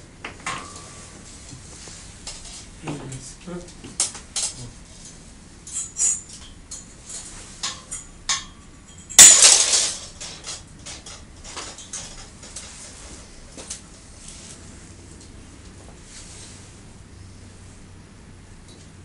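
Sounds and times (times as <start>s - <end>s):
wire and pliers clinking on metal: 4.0s - 13.0s.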